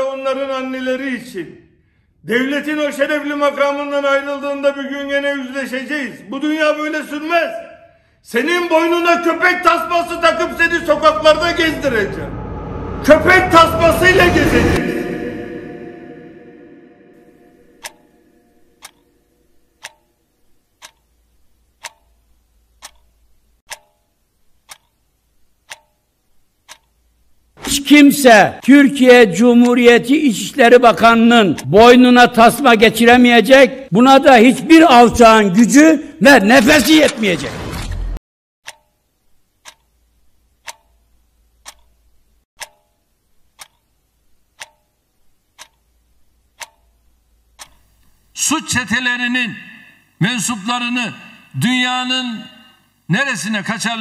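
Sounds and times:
low rumble: 9.4s - 18.7s
clock ticking: 17.2s - 27.9s, 29.4s - 30.0s, 31.0s - 31.9s, 38.6s - 48.4s.

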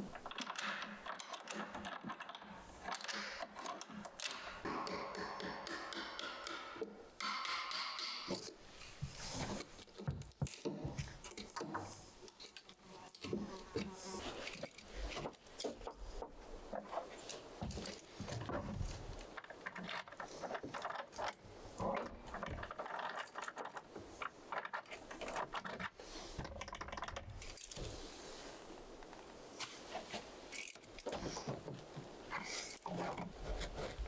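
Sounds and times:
chisel paring wood: 0.3s - 8.6s.

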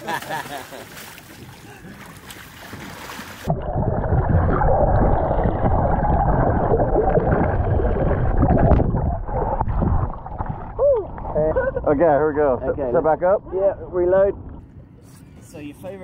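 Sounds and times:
water splashing: 0.0s - 12.2s
muffled underwater rumble: 3.4s - 16.0s.

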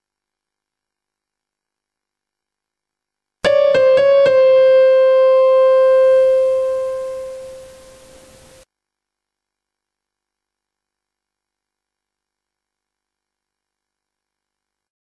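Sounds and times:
keyboard music sting: 3.4s - 8.6s.

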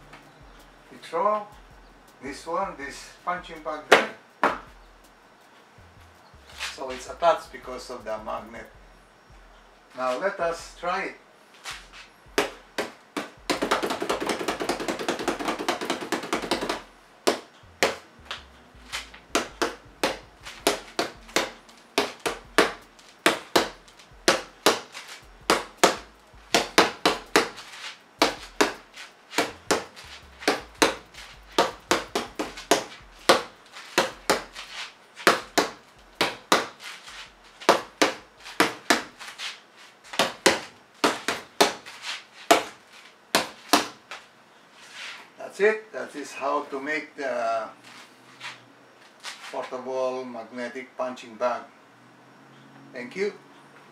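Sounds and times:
fists punching foam pad: 11.7s - 39.2s, 40.2s - 41.9s, 42.5s - 42.8s, 43.4s - 44.0s.

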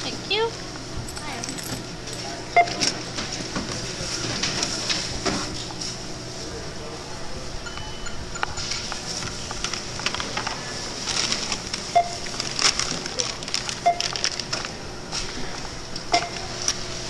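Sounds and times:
groceries clattering and crinkling: 1.1s - 6.0s, 9.0s - 16.9s
checkout beep: 2.5s - 3.0s, 7.6s - 8.9s, 11.8s - 12.4s, 13.8s - 14.2s, 16.1s - 16.5s.

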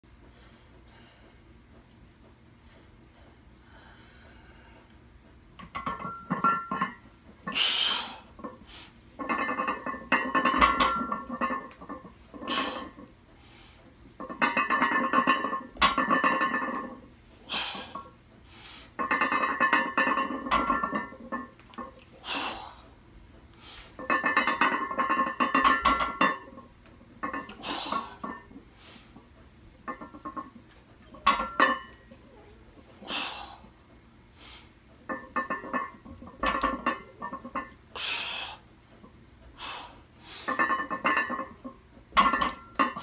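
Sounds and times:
barbell plates rattling and clanking: 9.2s - 13.1s, 14.2s - 17.0s, 19.0s - 22.0s, 24.0s - 26.6s, 29.8s - 32.1s, 35.1s - 37.7s, 40.5s - 43.0s.

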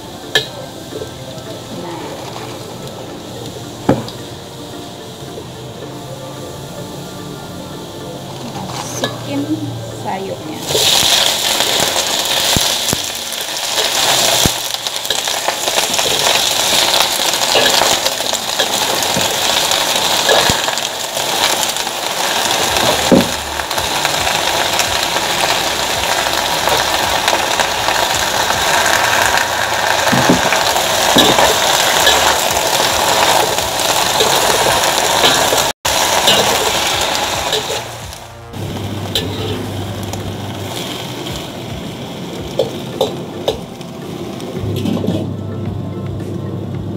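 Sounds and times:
greens sizzling in a wok: 0.0s - 44.9s
metal spatula scraping wok: 8.4s - 9.5s, 28.8s - 38.2s, 39.0s - 39.8s.

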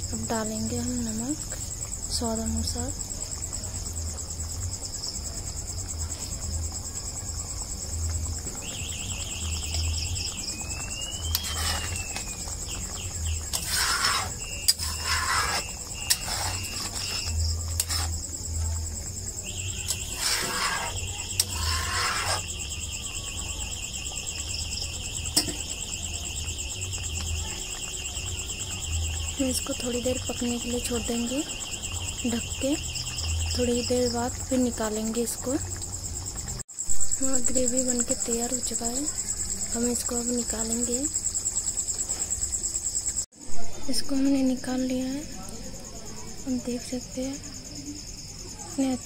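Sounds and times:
insects chirping: 0.0s - 49.0s
spatula scraping a pan: 11.2s - 18.2s, 19.7s - 22.5s.

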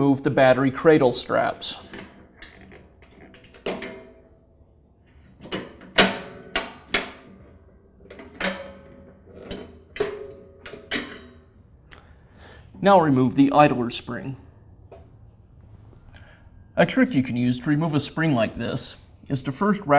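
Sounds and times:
metal strap clanking on metal frame: 5.1s - 11.6s.

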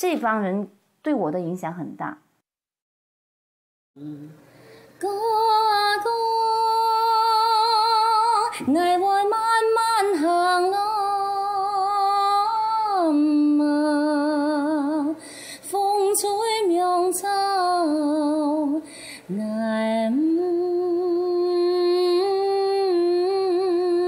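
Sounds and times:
woman singing unaccompanied: 5.0s - 24.0s.

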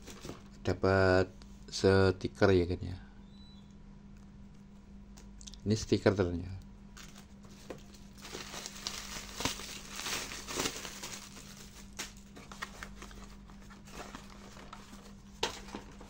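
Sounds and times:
plastic bag crinkling: 7.0s - 16.0s.

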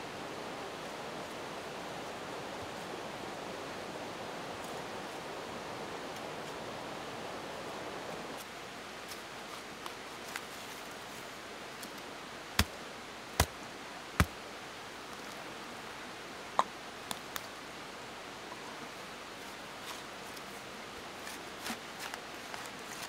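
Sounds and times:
faint scrapes and ticks: 8.4s - 12.0s, 19.4s - 23.0s.

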